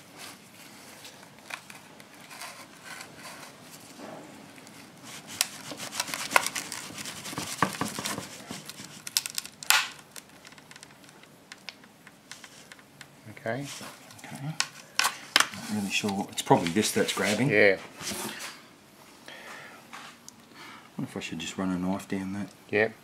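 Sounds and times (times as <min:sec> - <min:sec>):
peel ply crackling and clicking: 0:01.0 - 0:03.5, 0:04.5 - 0:13.2.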